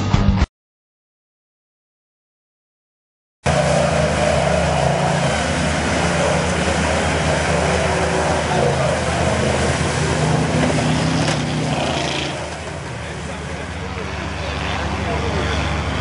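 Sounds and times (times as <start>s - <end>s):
truck engine revving hard: 3.4s - 16.0s
tyres churning through mud: 3.5s - 16.0s.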